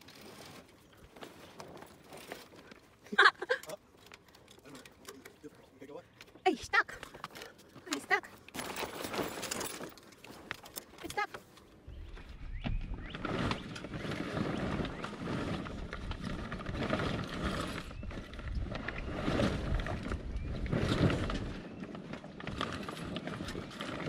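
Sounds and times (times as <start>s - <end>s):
sail rustling and flapping: 0.0s - 5.4s, 7.9s - 24.0s
small clicks and knocks: 3.6s - 6.4s.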